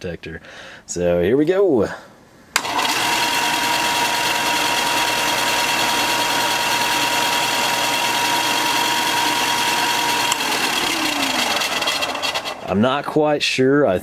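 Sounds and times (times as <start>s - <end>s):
bench sander motor hum and whine: 2.6s - 12.7s
spinning belt rush: 2.6s - 12.9s.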